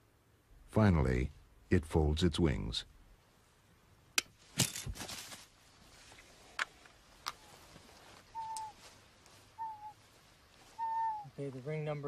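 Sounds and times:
short falling bird calls: 7.3s - 11.4s.

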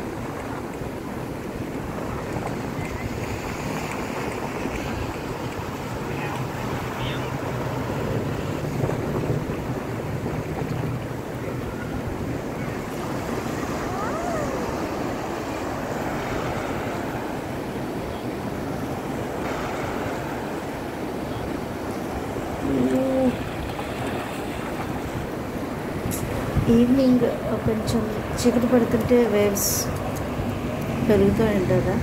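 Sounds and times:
surf washing onto sandy beach: 0.0s - 32.0s
wind buffeting microphone: 0.0s - 32.0s.

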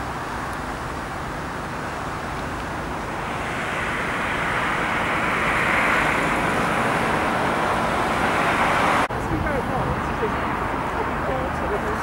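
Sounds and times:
car tyre hiss: 1.9s - 9.1s.

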